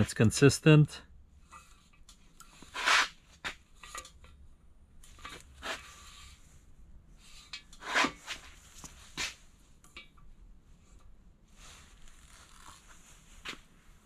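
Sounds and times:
light metal clicks and scrapes: 3.7s - 4.4s.

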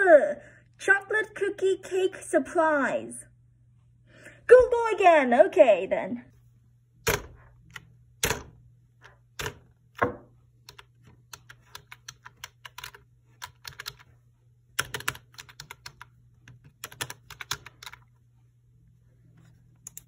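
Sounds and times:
faint low hum: 0.0s - 20.0s
typing on laptop keyboard: 10.7s - 14.1s, 14.8s - 18.1s.

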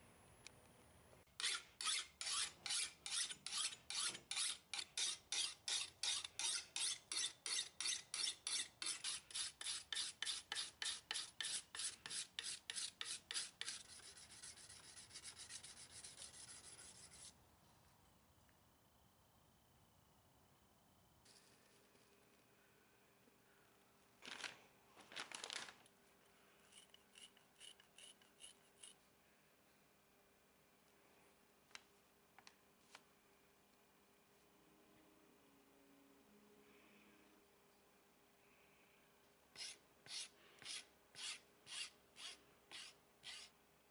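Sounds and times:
abrasive tool rasping on steel blade: 1.4s - 17.3s, 26.7s - 29.0s, 39.6s - 43.5s.

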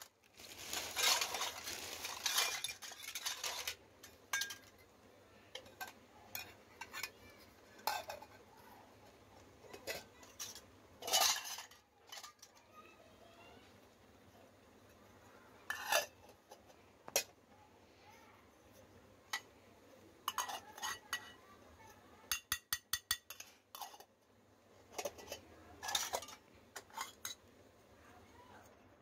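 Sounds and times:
toy metal dishes clinking: 0.6s - 4.9s, 5.5s - 8.6s, 9.6s - 12.8s, 15.6s - 17.4s, 20.2s - 24.1s, 24.9s - 27.5s.

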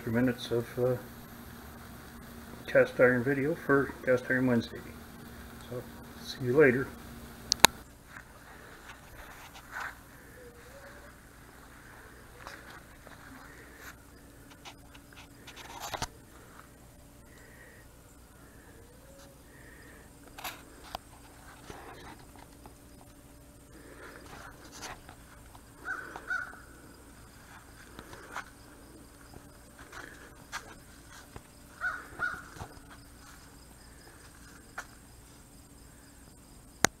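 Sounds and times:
sharp clicks: 7.4s - 7.8s
faint animal calls: 10.0s - 15.5s, 17.2s - 20.9s, 25.7s - 30.8s, 31.7s - 34.7s.

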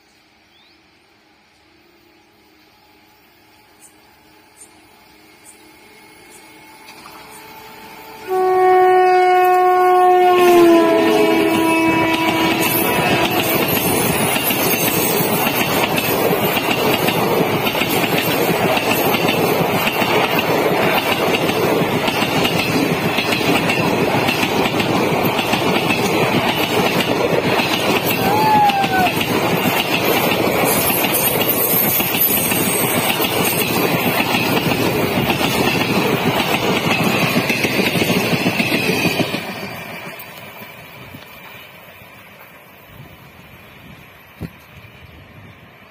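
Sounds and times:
train rushing past: 0.0s - 45.9s
wheels clacking over rail joints: 10.9s - 42.7s.

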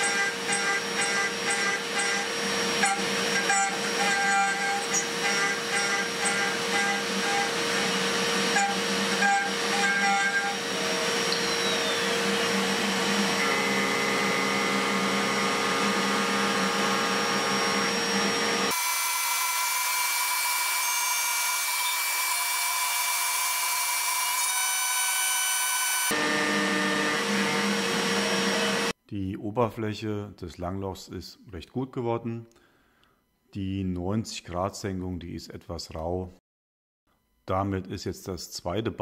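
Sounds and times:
spindle whine: 0.0s - 18.7s
milling machine cutting steel: 0.0s - 28.9s.

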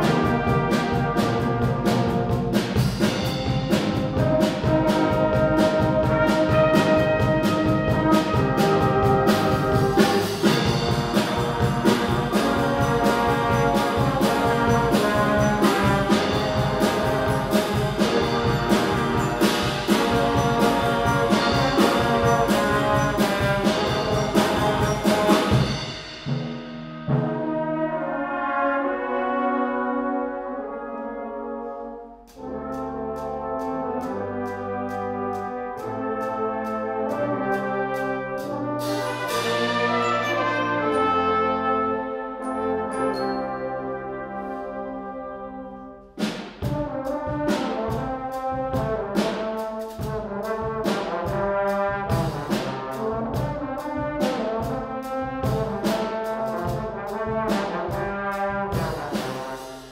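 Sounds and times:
percussion beat: 0.0s - 27.0s, 46.2s - 59.9s
brass band playing: 0.0s - 59.9s.

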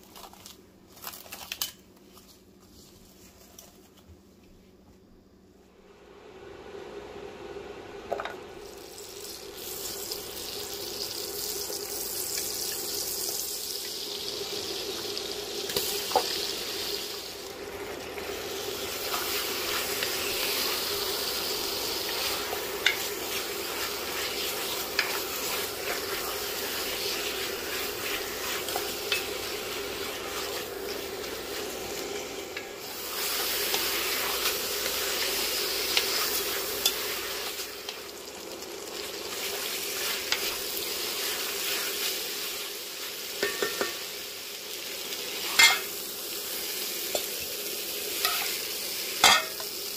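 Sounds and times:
chicken sizzling in a pot: 6.0s - 49.9s.

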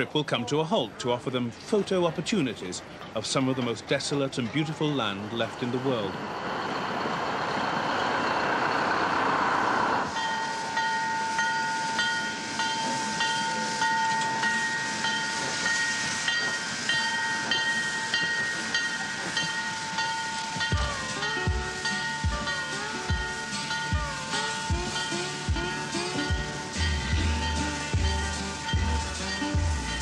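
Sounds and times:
steam hiss: 5.7s - 30.0s
high ringing tone with beat: 10.2s - 30.0s.

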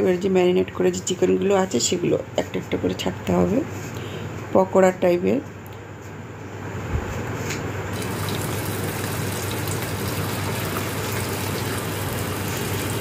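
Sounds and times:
oil sizzling while deep-frying: 7.9s - 13.0s.

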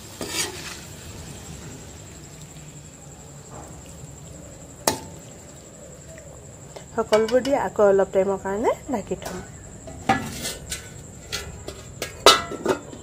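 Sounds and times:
metal spoon scraping wok: 0.0s - 1.2s, 9.2s - 13.0s
insect trill: 0.0s - 13.0s.

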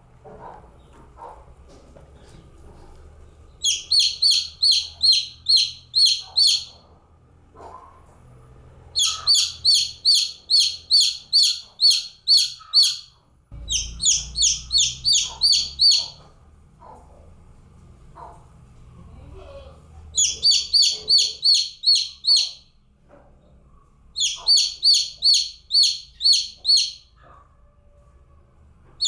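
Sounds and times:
chick peeping: 3.5s - 6.9s, 9.0s - 17.0s, 20.2s - 22.7s, 24.2s - 27.4s.

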